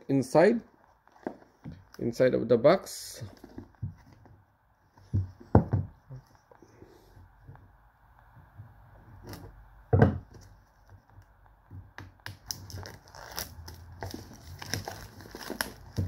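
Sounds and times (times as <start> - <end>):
plastic wrap crinkling and tearing: 12.2 - 16.0.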